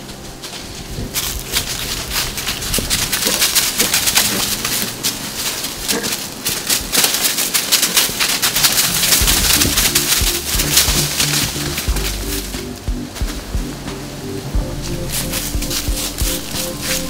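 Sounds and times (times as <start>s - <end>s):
hooves crunching dry leaves: 0.0s - 17.0s.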